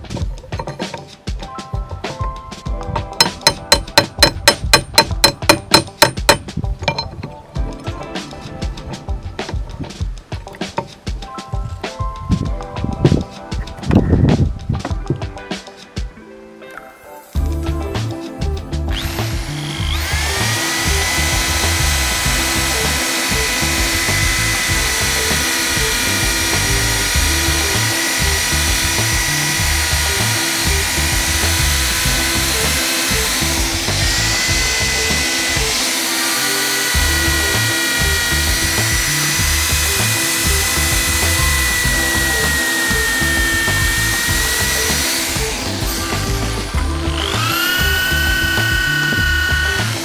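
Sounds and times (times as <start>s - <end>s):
electric drill motor whine: 18.8s - 50.0s
wire brush scrubbing metal: 18.9s - 50.0s.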